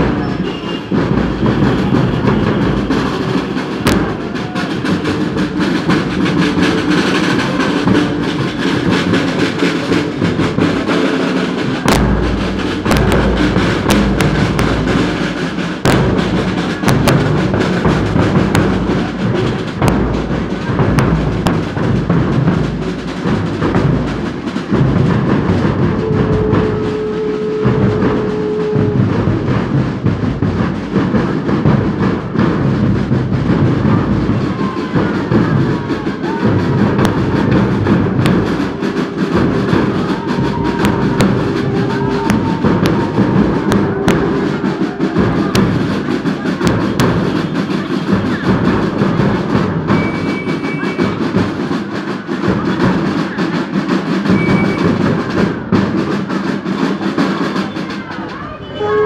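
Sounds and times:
side drums beating: 0:00.0 - 0:59.0
bass drum thumps: 0:03.8 - 0:04.4, 0:11.8 - 0:15.0, 0:15.8 - 0:34.1, 0:36.6 - 0:44.4.

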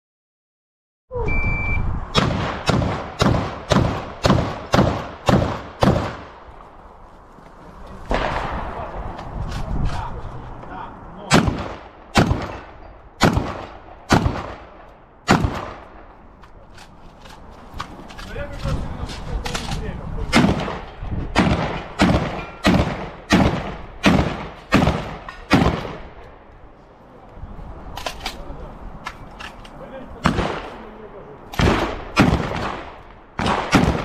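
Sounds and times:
shot timer beep: 0:01.3 - 0:01.8
gunshots: 0:02.1 - 0:06.4, 0:08.1 - 0:09.2, 0:11.3 - 0:16.2, 0:20.3 - 0:26.2, 0:30.2 - 0:30.9, 0:31.5 - 0:34.0.

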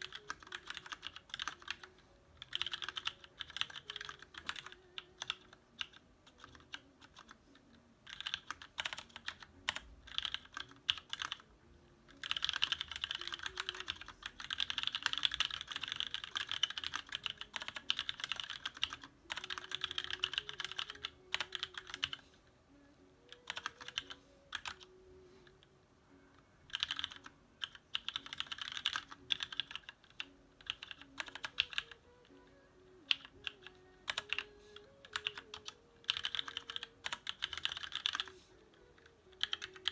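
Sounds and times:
fast typing on mechanical keyboard: 0:00.0 - 0:07.4, 0:08.0 - 0:11.5, 0:12.1 - 0:22.2, 0:23.3 - 0:24.9, 0:26.7 - 0:32.0, 0:33.1 - 0:39.9
faint music: 0:00.0 - 0:39.9.

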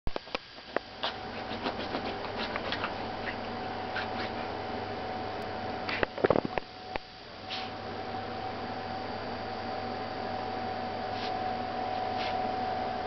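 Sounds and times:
faint steady hum: 0:00.1 - 0:13.0
dog scratching a bedsheet: 0:01.0 - 0:04.5, 0:11.1 - 0:12.4.

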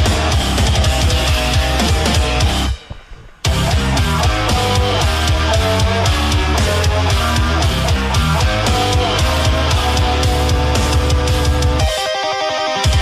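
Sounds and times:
heavy metal music: 0:00.0 - 0:13.0.

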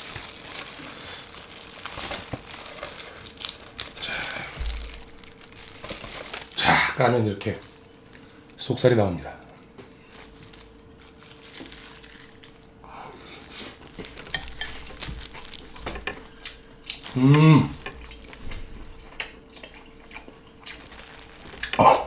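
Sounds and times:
person humming mmm: 0:03.9 - 0:04.9, 0:16.9 - 0:17.9, 0:21.6 - 0:22.0
wet chewing mouth sounds: 0:19.0 - 0:22.0.

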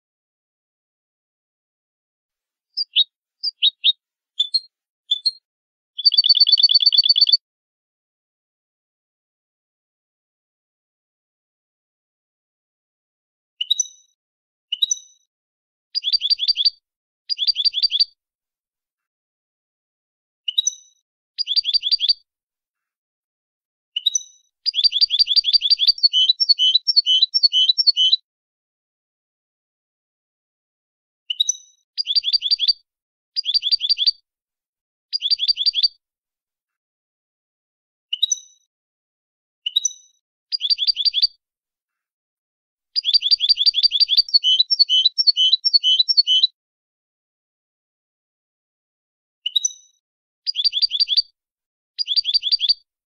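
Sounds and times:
finch singing trills: 0:02.8 - 0:05.4, 0:06.0 - 0:07.4, 0:16.0 - 0:18.1, 0:24.0 - 0:28.2, 0:35.2 - 0:35.9, 0:40.6 - 0:41.3, 0:43.0 - 0:46.5, 0:50.5 - 0:51.2, 0:52.0 - 0:52.8.

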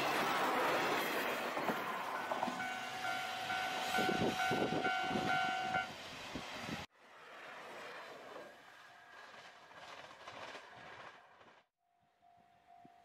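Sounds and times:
train passing with rail noise: 0:00.0 - 0:13.0
level crossing alarm clanging: 0:02.0 - 0:05.9.

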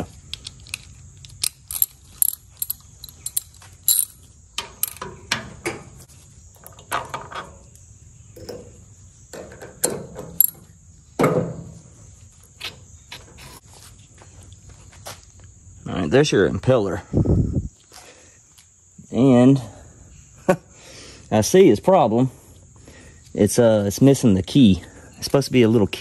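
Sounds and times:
hand tools clinking on metal: 0:00.6 - 0:05.0, 0:10.4 - 0:10.6.

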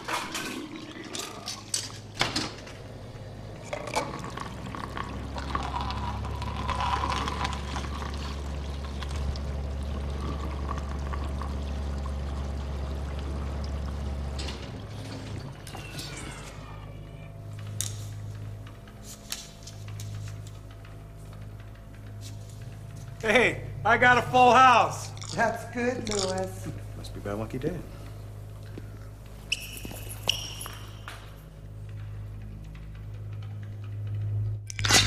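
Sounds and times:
vending machine hum: 0:00.0 - 0:35.0
coffee pouring into cup: 0:03.6 - 0:15.8.

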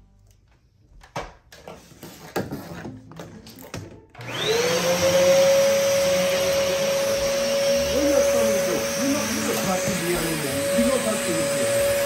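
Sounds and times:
vacuum cleaner running: 0:04.2 - 0:12.0.

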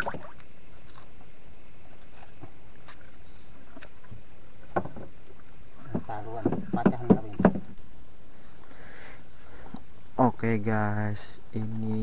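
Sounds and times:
knocks and taps on wooden canoe: 0:04.6 - 0:05.2, 0:05.8 - 0:07.8.

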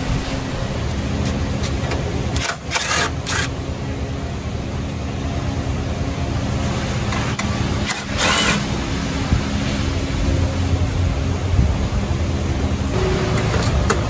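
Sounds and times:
low rumble: 0:00.0 - 0:01.6.

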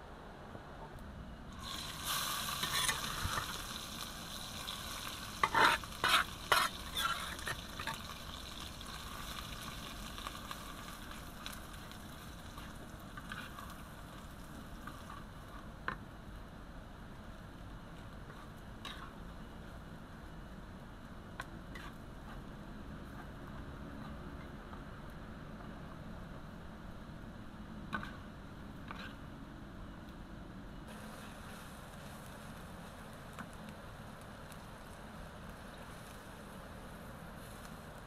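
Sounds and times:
spice paste sizzling in oil: 0:01.6 - 0:23.2, 0:30.9 - 0:38.0
metal spatula stirring: 0:05.4 - 0:08.1.

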